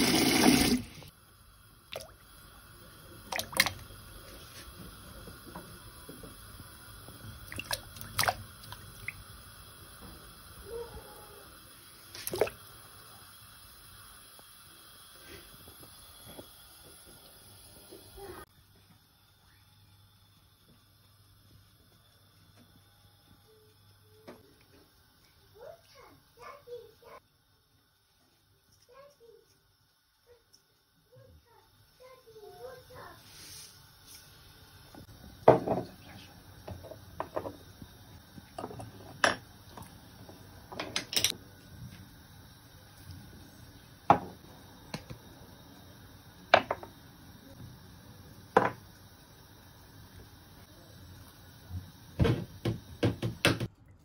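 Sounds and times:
water hissing in a pan: 0:00.0 - 0:53.7
water splash: 0:03.3 - 0:03.8, 0:12.1 - 0:12.6.

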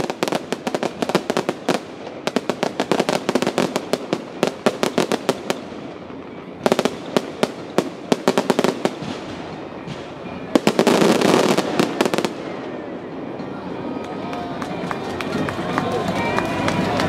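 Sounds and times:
fireworks cracking and banging: 0:00.0 - 0:17.0.

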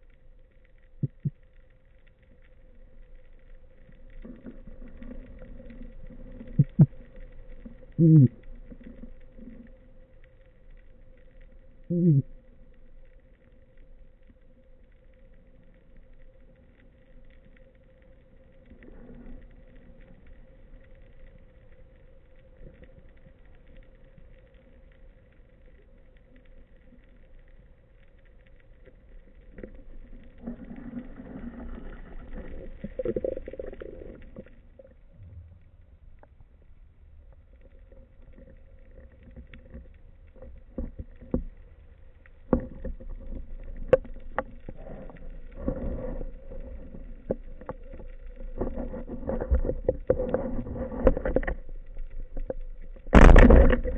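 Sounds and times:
muffled underwater hum with whine: 0:00.0 - 0:53.9
underwater rushing: 0:02.3 - 0:14.6, 0:28.7 - 0:36.2, 0:37.2 - 0:53.9.

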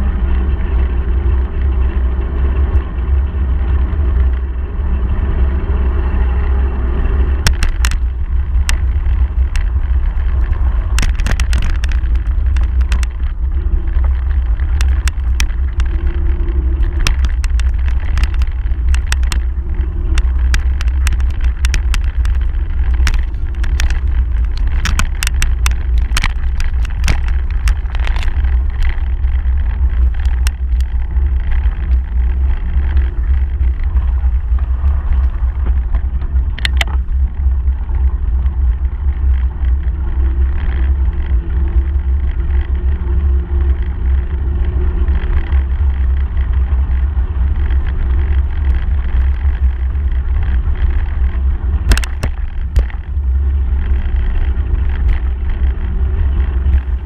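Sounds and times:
bicycle clicks and rattles: 0:00.0 - 0:57.0
wind noise: 0:00.0 - 0:57.0.

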